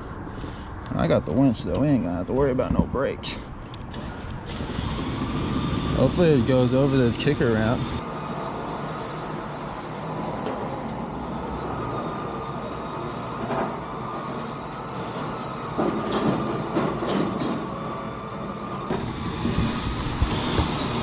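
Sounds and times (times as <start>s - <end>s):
winch running with faint whine: 0.0s - 21.0s
metal clanks and creaks: 11.8s - 17.9s.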